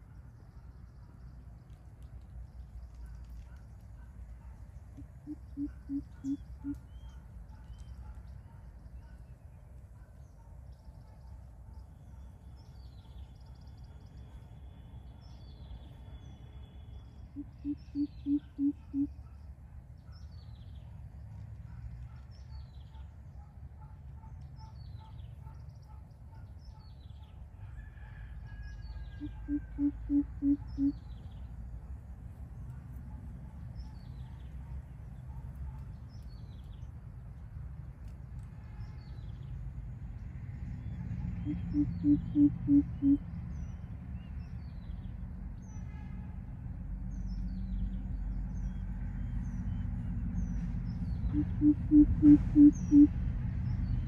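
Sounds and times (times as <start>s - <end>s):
small bird high chirps: 17.3s - 19.2s, 29.2s - 31.3s
bird deep hoots: 29.2s - 31.0s, 41.4s - 43.2s, 51.3s - 53.1s.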